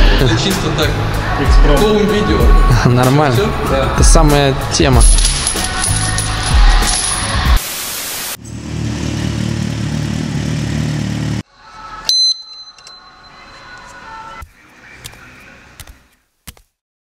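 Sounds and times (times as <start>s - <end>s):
metallic clink: 5.0s - 7.4s, 12.1s - 13.4s
burst of hiss: 7.6s - 8.4s
motorcycle engine rumbling: 8.4s - 11.4s.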